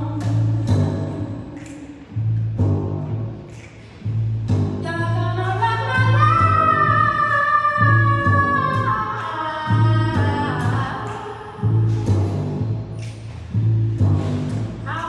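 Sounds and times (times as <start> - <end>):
woman singing: 0.0 - 2.0, 4.8 - 12.4
double bass low notes: 0.0 - 9.1, 9.7 - 15.0.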